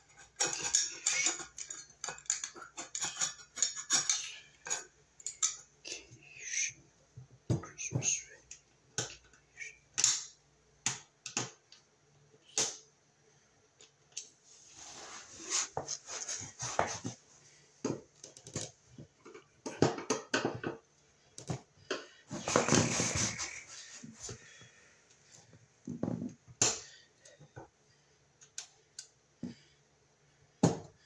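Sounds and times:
scraping and rustling: 0:14.4 - 0:17.3, 0:22.3 - 0:24.5.

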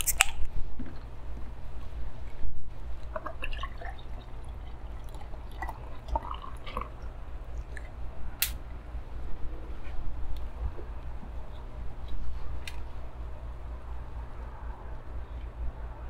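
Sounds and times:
beer pouring and fizzing: 0:03.0 - 0:08.1.

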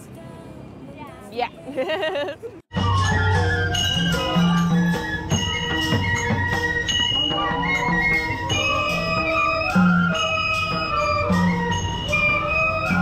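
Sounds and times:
bamboo flutes playing melody: 0:02.7 - 0:13.0
percussion: 0:02.7 - 0:13.0.

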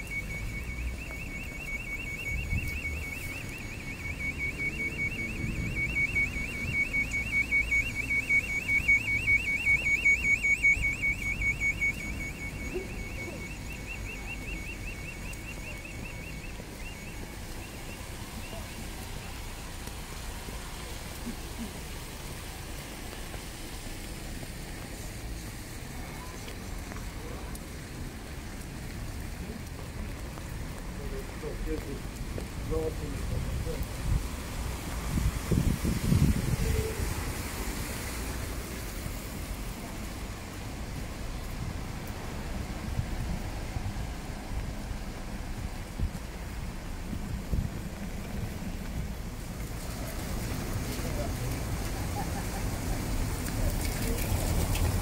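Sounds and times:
rapid electronic beeping: 0:00.0 - 0:18.9
low street rumble: 0:00.0 - 0:55.0.

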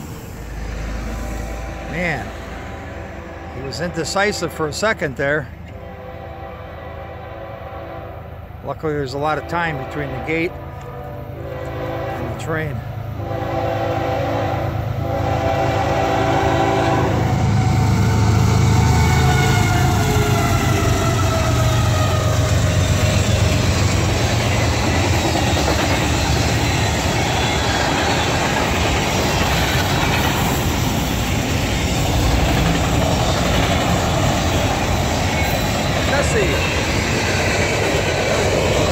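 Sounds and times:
train horn: 0:01.4 - 0:04.6, 0:05.7 - 0:08.3, 0:09.2 - 0:23.6
locomotive engine rumble: 0:08.4 - 0:38.9
freight cars rolling on rails: 0:18.2 - 0:38.9.

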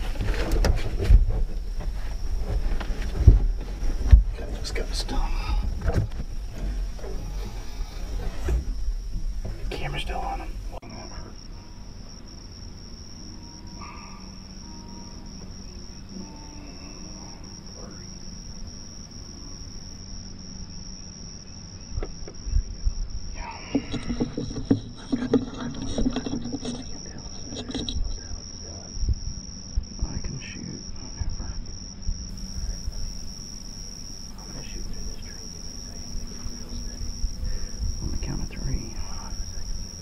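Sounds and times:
knocks and low sounds: 0:00.0 - 0:11.4
insects in a field: 0:00.0 - 0:40.0.

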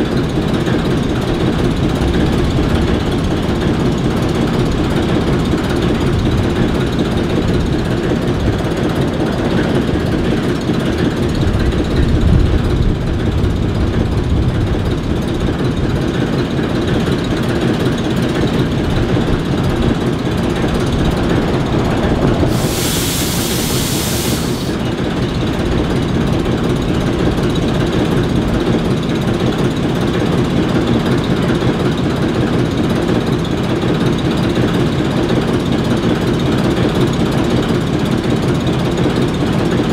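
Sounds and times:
diesel locomotive engines idling: 0:00.0 - 0:39.9
hiss: 0:21.2 - 0:25.0.

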